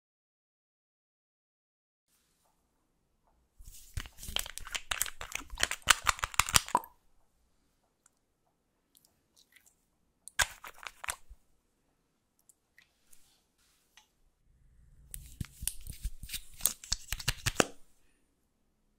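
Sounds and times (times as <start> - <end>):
bottle cap unscrewing crackle: 3.7 - 6.9, 10.4 - 11.3.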